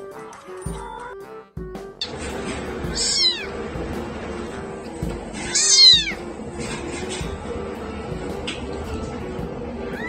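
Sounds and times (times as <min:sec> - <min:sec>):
kitten meowing: 0:02.9 - 0:03.5, 0:05.4 - 0:06.2.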